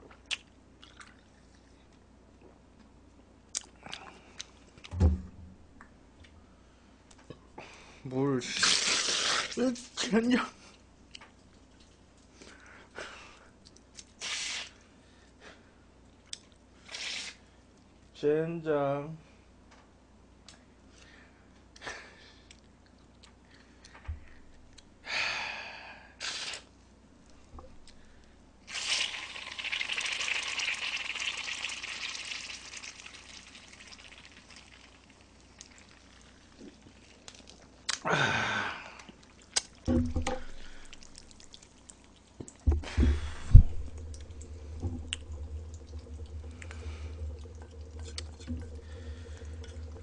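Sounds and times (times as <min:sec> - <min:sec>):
water pouring and gulping: 0:00.8 - 0:01.6, 0:28.7 - 0:38.2, 0:38.9 - 0:50.0
bottle handling noises: 0:39.9 - 0:41.0.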